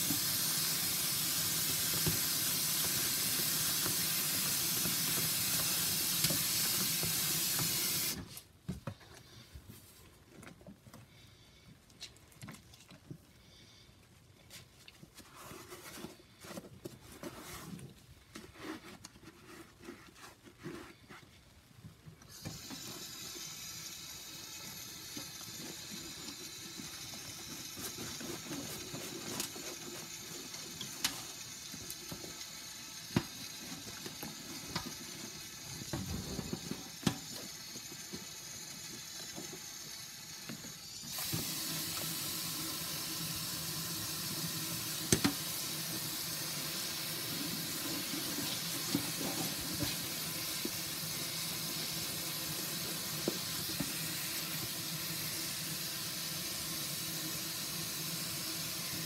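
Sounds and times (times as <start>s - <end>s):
tap water running into sink: 0.0s - 8.2s, 22.3s - 59.0s.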